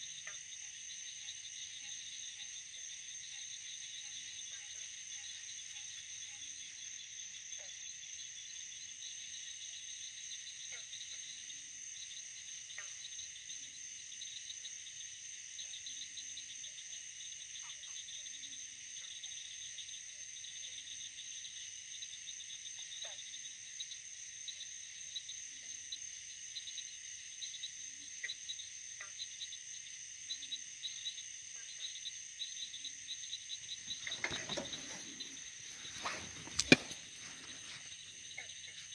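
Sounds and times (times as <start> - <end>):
faint ticks: 0.0 - 0.6, 12.7 - 13.2
insect trills: 0.0 - 38.9
rustling noise: 33.9 - 38.0.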